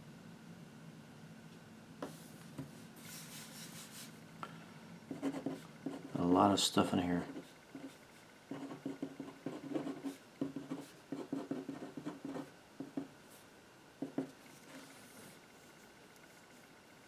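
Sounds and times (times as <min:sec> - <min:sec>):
marker pen writing on paper: 0:05.1 - 0:06.2, 0:07.3 - 0:13.1, 0:14.0 - 0:15.0.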